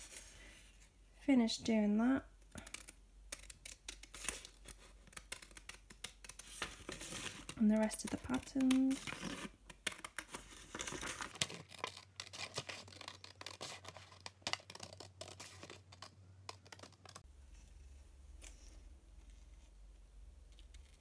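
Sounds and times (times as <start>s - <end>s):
scissors snipping paper: 2.6s - 6.8s.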